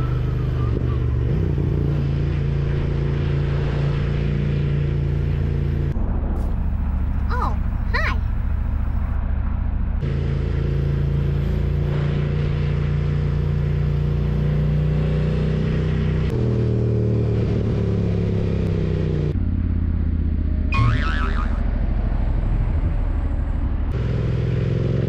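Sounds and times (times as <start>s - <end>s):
wind and road noise: 0.0s - 25.0s
motorcycle engine running: 12.7s - 25.0s.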